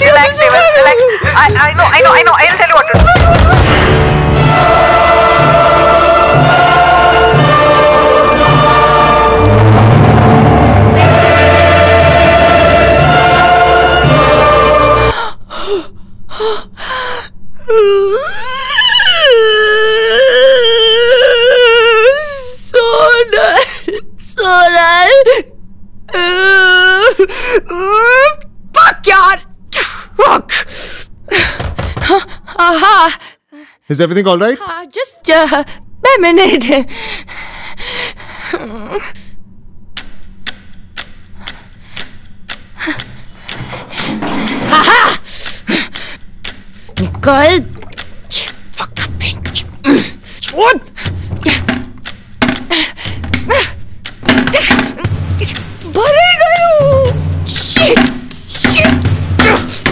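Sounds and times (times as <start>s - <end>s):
woman wailing and sobbing: 0.0s - 3.9s, 15.0s - 25.5s, 26.1s - 28.5s, 44.6s - 46.1s, 49.8s - 51.8s, 52.7s - 59.9s.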